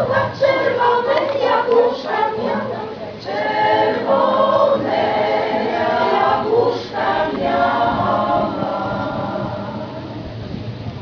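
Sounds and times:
women's choir singing: 0:00.0 - 0:10.3.

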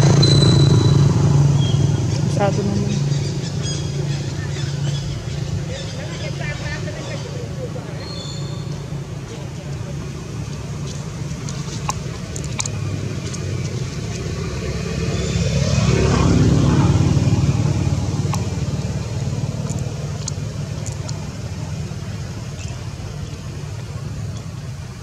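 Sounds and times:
vehicle engine rumble passing: 0:00.0 - 0:25.0
faint clicks: 0:10.5 - 0:14.3, 0:19.6 - 0:21.3.

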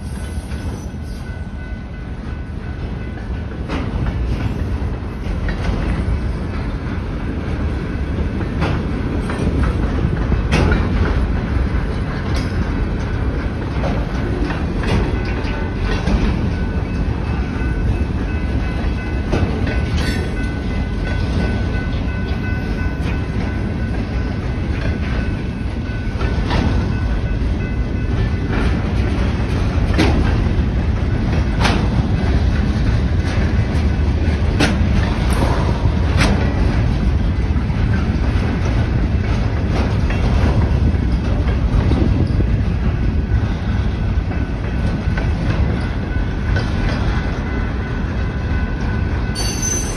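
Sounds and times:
freight train rumble: 0:00.0 - 0:49.9
wheel clacks over rail joints: 0:08.2 - 0:43.0.

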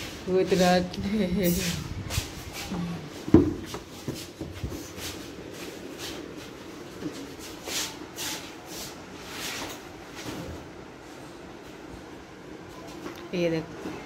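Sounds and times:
shuffling footsteps: 0:00.0 - 0:10.6.

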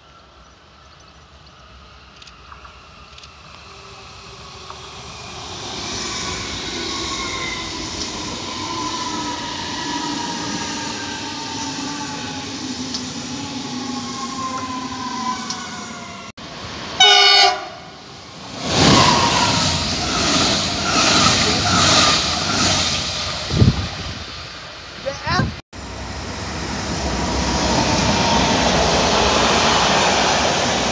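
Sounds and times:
electric train motors whining: 0:00.2 - 0:17.4
train rushing rumble: 0:01.6 - 0:30.9
train horn blast: 0:17.0 - 0:17.9.

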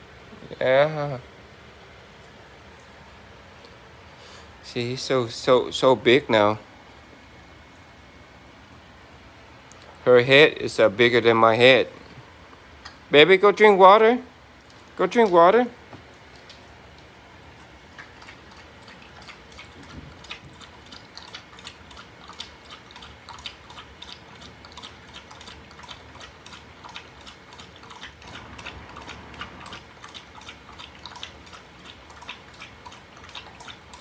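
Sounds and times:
dog lapping water from bowl: 0:14.7 - 0:34.0.

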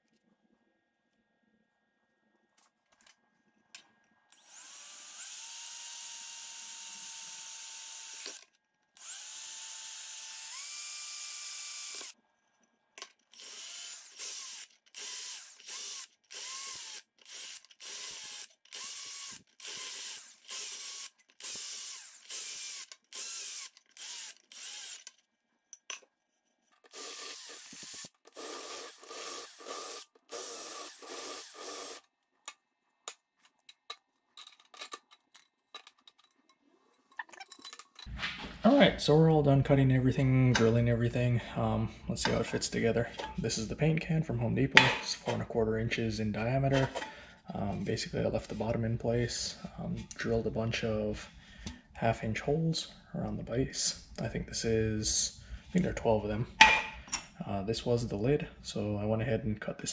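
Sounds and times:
cordless drill boring steel can: 0:04.3 - 0:12.2, 0:13.3 - 0:25.2, 0:26.8 - 0:32.1.

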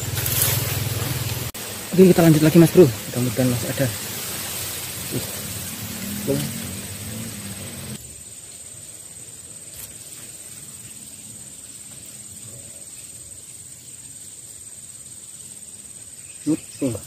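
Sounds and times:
rush of noise: 0:00.0 - 0:08.0
insects trilling: 0:00.0 - 0:17.0.

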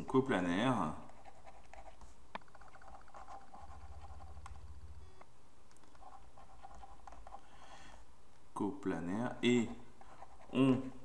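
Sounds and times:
stylus scratching on pen tablet: 0:00.5 - 0:04.8, 0:05.9 - 0:07.5, 0:09.6 - 0:10.8.

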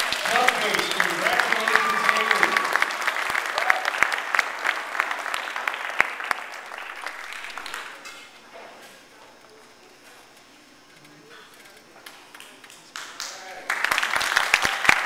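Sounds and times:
audience applauding: 0:00.0 - 0:08.1, 0:12.3 - 0:15.0.

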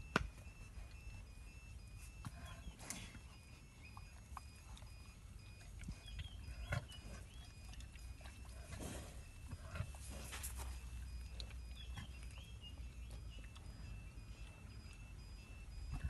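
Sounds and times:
rhino snuffling: 0:00.3 - 0:16.0.

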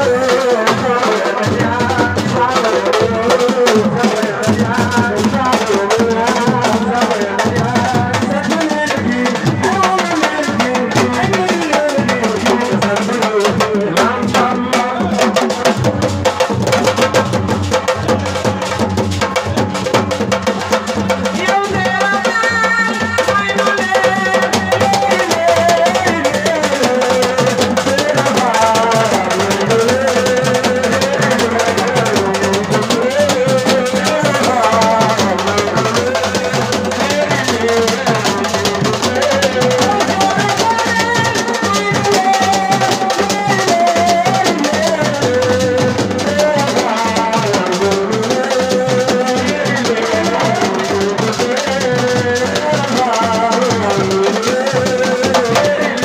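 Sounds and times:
drums and percussion beat: 0:00.0 - 0:56.0
person chanting: 0:21.3 - 0:56.0.

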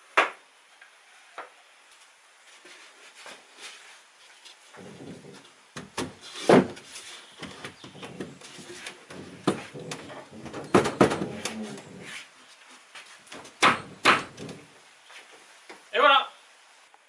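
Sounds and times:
boards scraping: 0:04.6 - 0:15.5
boards knocking and clunking: 0:04.8 - 0:12.2, 0:13.3 - 0:14.8.

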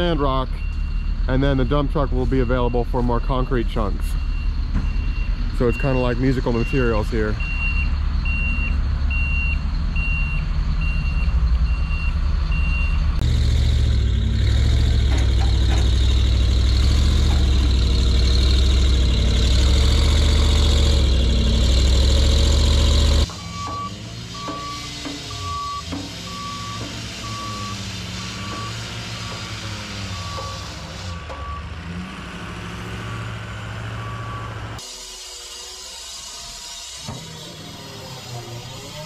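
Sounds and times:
high backup alarm beeping: 0:00.0 - 0:13.1, 0:23.2 - 0:31.8
low backup alarm beeping: 0:00.0 - 0:13.1, 0:23.2 - 0:31.8
truck engine running: 0:00.0 - 0:39.0.

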